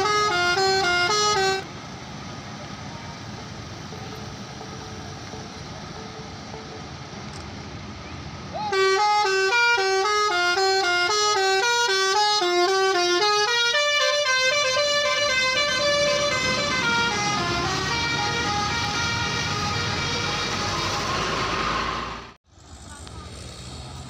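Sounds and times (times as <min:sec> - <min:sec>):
musical bus horn melody: 0:00.0 - 0:01.8, 0:08.6 - 0:22.2
bus engine and tyres rushing: 0:00.0 - 0:24.0.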